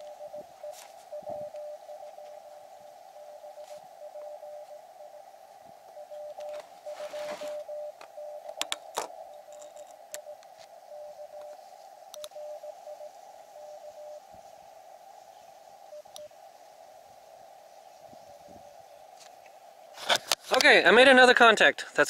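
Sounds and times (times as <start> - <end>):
morse code tone: 0.0 - 14.2, 15.8 - 16.3
receiver hiss: 0.0 - 22.0
sharp clicks: 8.0 - 10.6, 11.4 - 12.4.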